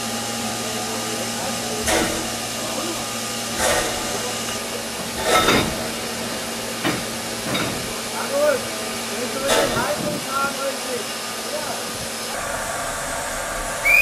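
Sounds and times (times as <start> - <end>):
steam hissing: 0.0 - 14.0.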